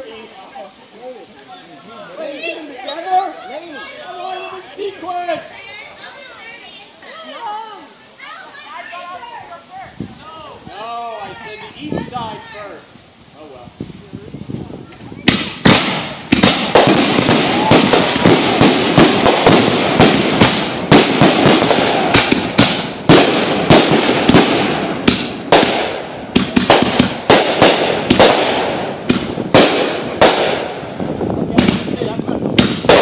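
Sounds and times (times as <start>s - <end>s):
fireworks hiss and crackle: 0.0s - 33.0s
fireworks bangs: 14.6s - 33.0s.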